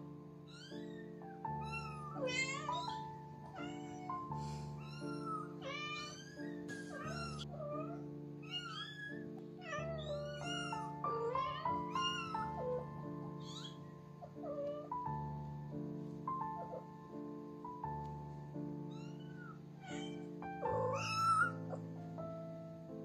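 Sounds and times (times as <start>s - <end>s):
background music: 0.0s - 23.0s
kittens meowing: 0.5s - 15.0s, 18.8s - 22.0s.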